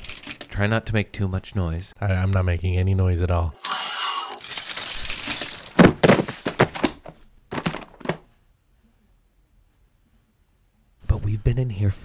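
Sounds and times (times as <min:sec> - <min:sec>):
objects knocking and crashing: 0:04.4 - 0:08.3.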